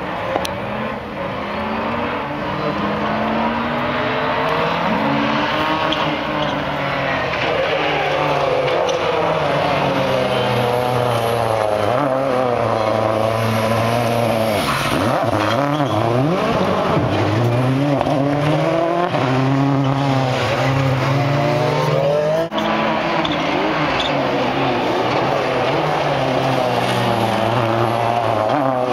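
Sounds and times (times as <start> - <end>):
rally car engine revving: 0.0 - 28.9.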